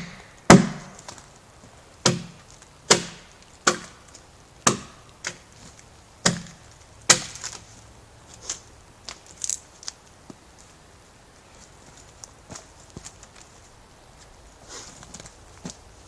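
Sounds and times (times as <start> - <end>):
adze chopping into log: 0.0 - 1.0, 2.0 - 4.0, 4.6 - 5.5, 6.2 - 7.6.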